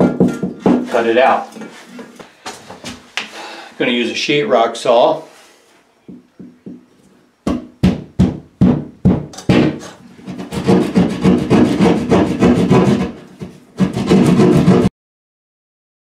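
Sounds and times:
saw rasping through drywall: 9.5s - 14.9s.

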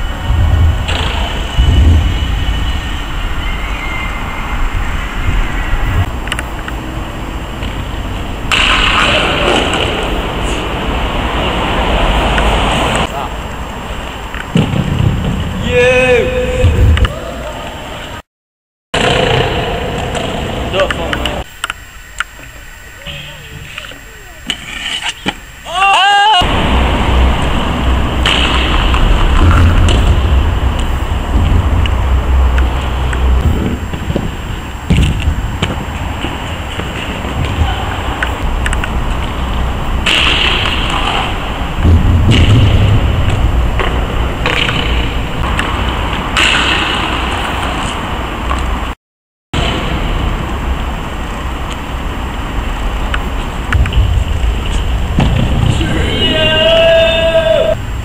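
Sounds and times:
loud steady rumbling: 0.0s - 17.9s, 26.4s - 48.9s, 49.6s - 58.0s
scooter wheels rolling: 19.0s - 48.9s.

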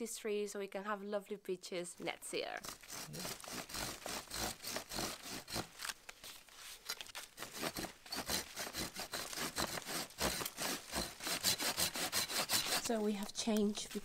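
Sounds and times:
hand saw cutting wood: 2.6s - 6.0s, 6.8s - 13.1s.

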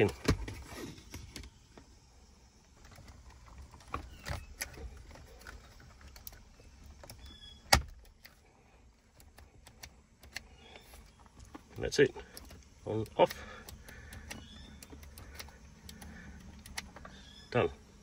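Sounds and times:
hands clicking plastic trim: 11.7s - 17.1s.

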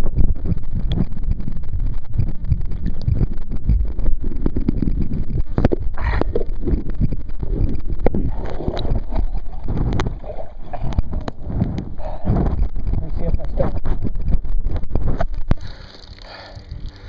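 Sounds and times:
muffled rumbling: 0.0s - 17.0s
camera rubbing against fabric: 2.8s - 15.6s.

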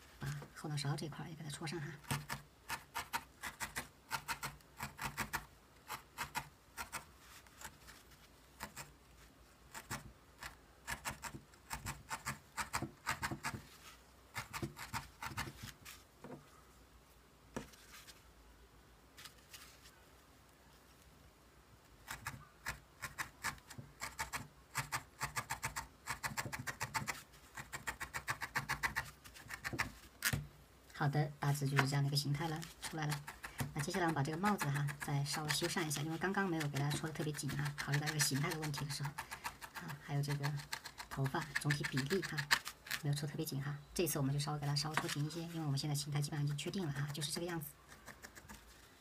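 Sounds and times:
felting needle poking into foam: 2.0s - 8.0s, 8.6s - 9.0s, 9.7s - 15.8s, 22.0s - 30.5s, 31.5s - 43.2s, 44.7s - 48.8s.

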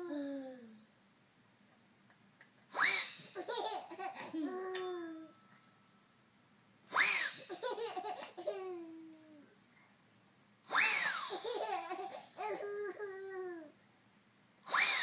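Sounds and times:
baby laughing: 2.8s - 4.8s, 6.9s - 9.4s, 10.8s - 13.7s.

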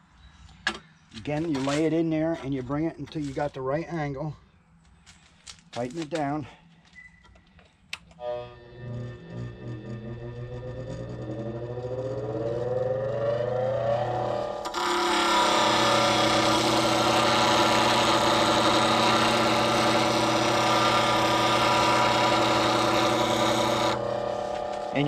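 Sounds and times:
bench grinder motor whine: 8.1s - 25.0s.

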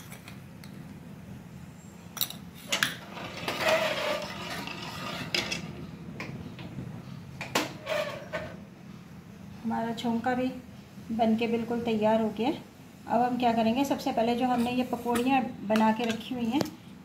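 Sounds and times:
spoon stirring and scraping: 3.1s - 5.6s.

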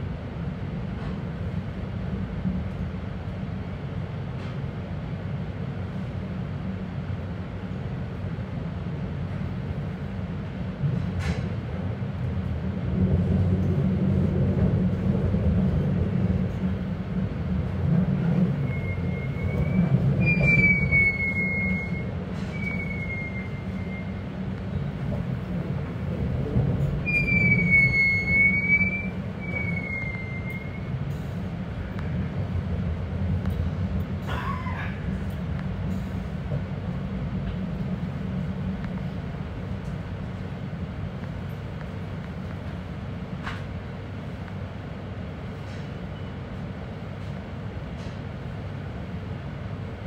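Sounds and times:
train rumbling: 0.0s - 50.0s
high wheel squeal: 18.6s - 24.2s, 27.0s - 30.9s.

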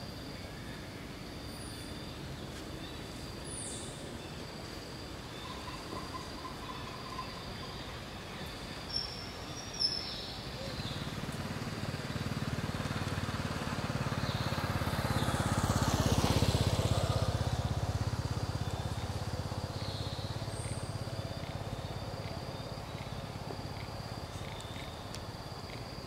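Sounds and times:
vehicle passing: 10.7s - 24.9s.

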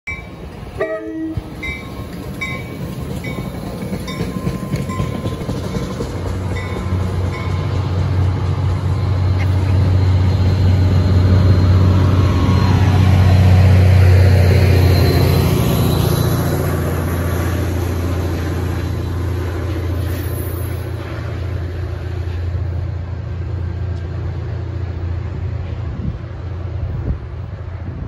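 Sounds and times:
diesel locomotive low drone: 0.1s - 28.0s
train wheel and rail noise: 0.1s - 28.0s.

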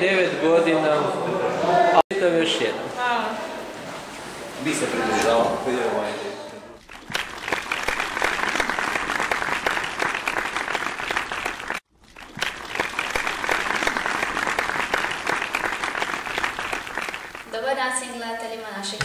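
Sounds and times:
applause: 6.8s - 17.6s.

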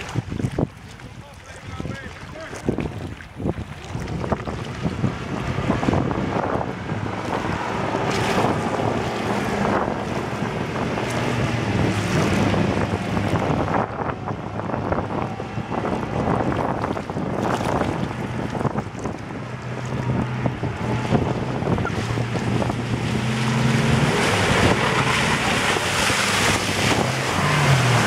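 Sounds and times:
outboard motor running: 0.0s - 28.0s
wind buffeting microphone: 0.0s - 28.0s.

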